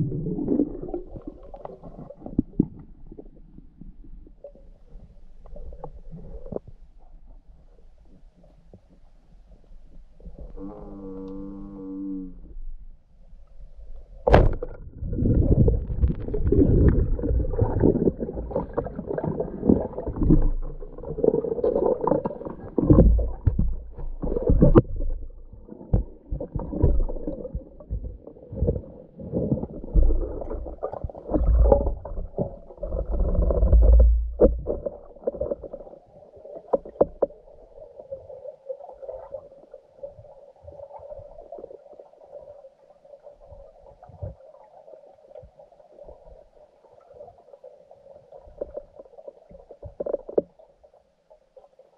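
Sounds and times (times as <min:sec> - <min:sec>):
heavy low underwater rumbles: 0:00.0 - 0:38.0
muffled underwater sloshing: 0:00.0 - 0:51.9
sharp knocks underwater: 0:14.2 - 0:35.8.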